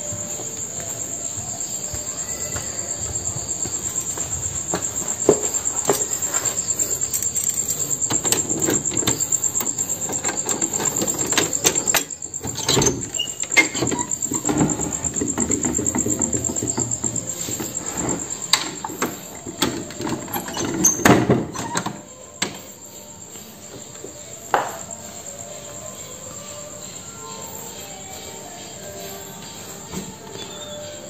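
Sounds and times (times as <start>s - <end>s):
crickets chirping: 0.0s - 31.0s.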